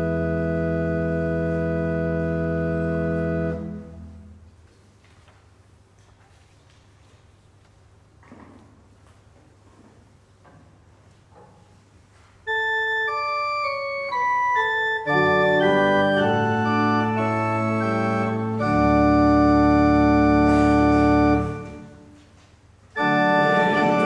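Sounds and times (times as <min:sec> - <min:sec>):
pipe organ playing: 0:00.0 - 0:04.5, 0:12.5 - 0:22.2, 0:22.9 - 0:24.0
congregation singing a hymn: 0:23.0 - 0:24.0.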